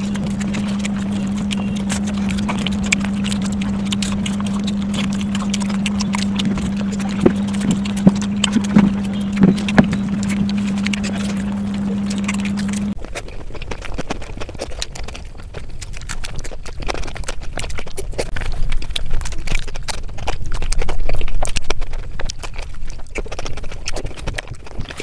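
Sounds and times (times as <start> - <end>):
steady low hum: 0.0 - 13.0
wet chewing and lip-smacking: 0.0 - 25.0.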